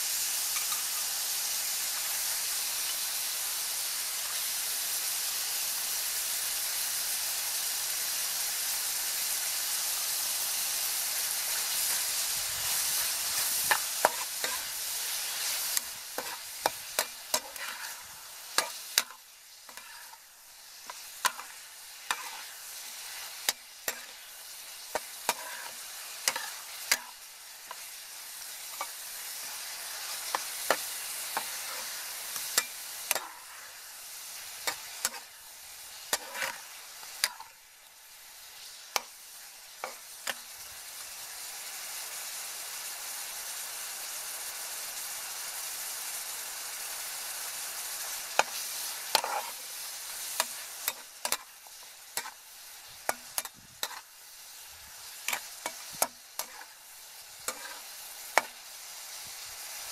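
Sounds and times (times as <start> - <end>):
shrimp sizzling in frying pan: 0.0 - 59.9
metal spatula scraping pan: 13.3 - 20.2, 20.8 - 22.6, 23.4 - 24.3, 24.9 - 27.9, 28.7 - 33.6, 36.1 - 37.5, 48.4 - 49.6, 53.1 - 54.1, 55.3 - 56.8, 57.4 - 58.5.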